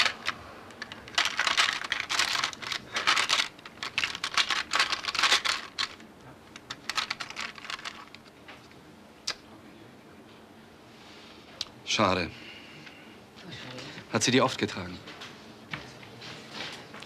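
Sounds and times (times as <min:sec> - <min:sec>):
trinkets rattling in plastic drawer: 0:00.0 - 0:06.0, 0:06.6 - 0:08.3.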